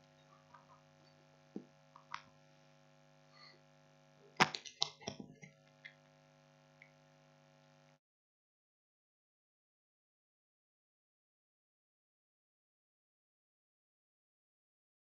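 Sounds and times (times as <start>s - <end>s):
electrical mains hum: 0.0s - 8.0s.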